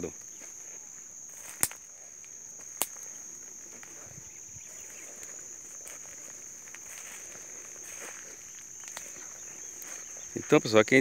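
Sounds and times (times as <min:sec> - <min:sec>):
faint outdoor hiss: 0:00.0 - 0:11.0
high thin insect chirring: 0:00.0 - 0:11.0
sharp clicks: 0:02.7 - 0:03.1.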